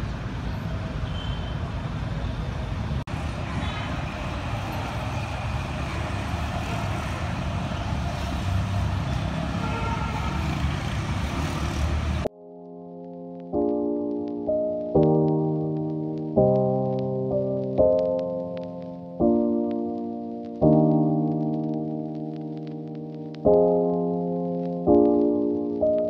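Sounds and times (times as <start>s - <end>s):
road traffic rumble: 0.0s - 12.3s.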